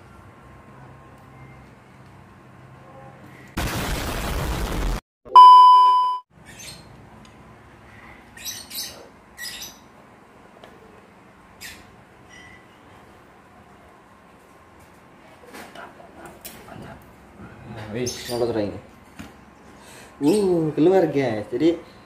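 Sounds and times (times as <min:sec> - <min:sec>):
loud static hiss: 0:03.6 - 0:05.0
loud steady beep: 0:05.3 - 0:06.3.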